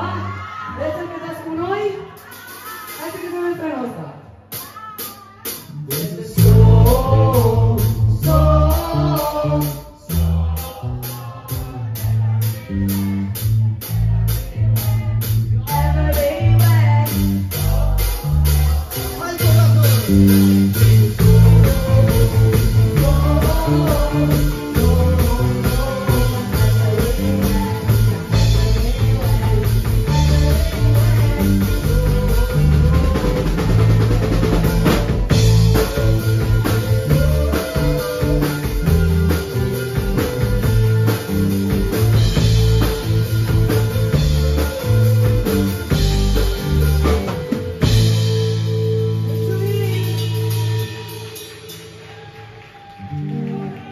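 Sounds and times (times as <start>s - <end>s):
bass guitar: 0.0s - 0.7s, 5.7s - 53.9s
drum kit beating: 4.3s - 53.9s
woman singing: 4.6s - 19.2s, 20.8s - 34.0s, 34.8s - 40.7s, 49.4s - 51.5s
electric guitars: 5.8s - 53.9s.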